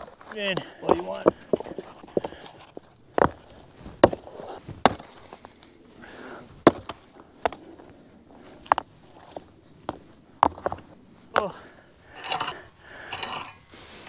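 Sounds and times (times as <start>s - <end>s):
stones knocking together: 0.0s - 5.6s, 6.6s - 7.6s, 8.6s - 11.6s.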